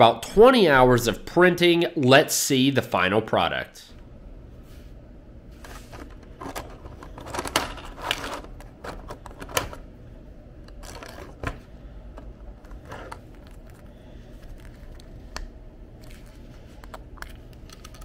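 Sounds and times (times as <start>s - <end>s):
plastic gear clicking and rattling: 10.7s - 11.6s.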